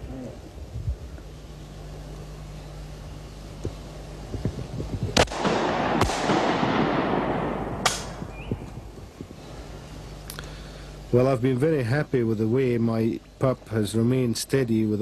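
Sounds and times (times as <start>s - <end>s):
shotgun shots: 5.2s - 8.4s
rolling echo: 5.2s - 9.2s.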